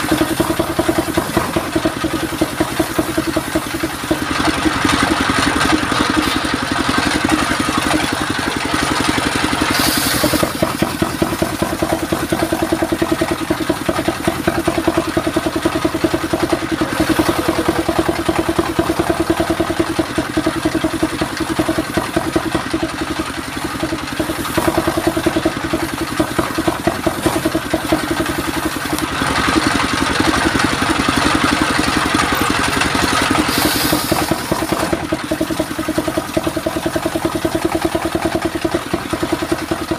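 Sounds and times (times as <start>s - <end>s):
engine chugging: 0.0s - 39.9s
circular saw cutting wood: 9.5s - 31.1s, 31.8s - 36.1s.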